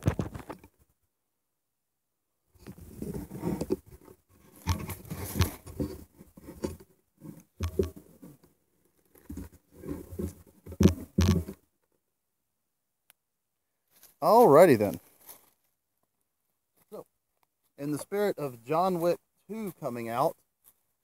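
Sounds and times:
phone handling noise: 7.6 - 8.4.

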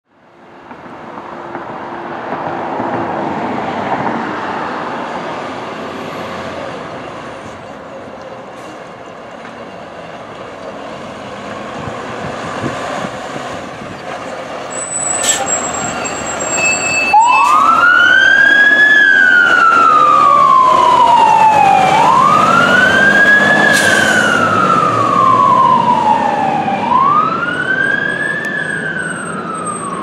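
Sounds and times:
brief air hisses: 23.7 - 24.3.

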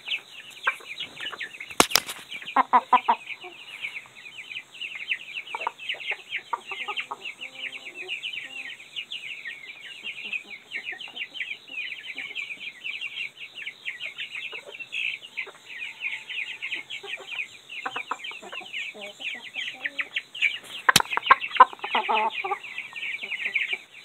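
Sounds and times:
chickens clucking: 0.0 - 24.0
low drawn-out chicken calls: 14.5 - 24.0.

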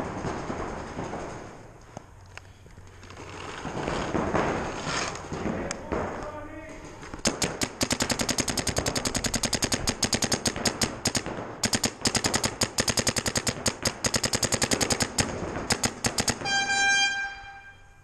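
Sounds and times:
paintball markers firing rapidly: 5.2 - 16.6.

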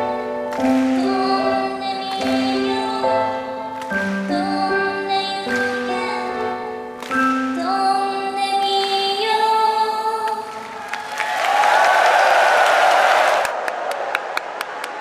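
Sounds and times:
digital piano chords: 0.0 - 10.2
woman singing a ballad: 0.0 - 10.6
applause and cheering: 10.4 - 15.0.

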